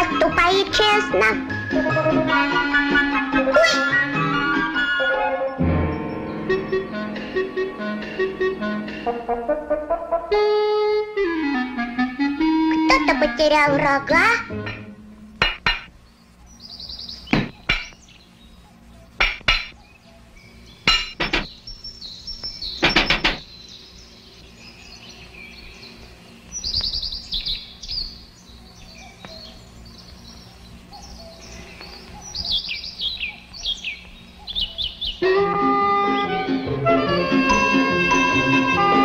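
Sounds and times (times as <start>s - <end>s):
bird chirps and twitters: 15.9s - 35.3s
cartoon hammer knocks: 17.3s - 18.0s, 19.2s - 19.8s, 20.9s - 21.5s, 22.8s - 23.4s.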